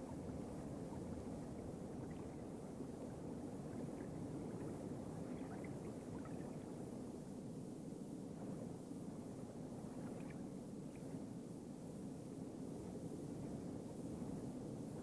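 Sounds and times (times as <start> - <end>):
underwater rumble: 0.0 - 7.1.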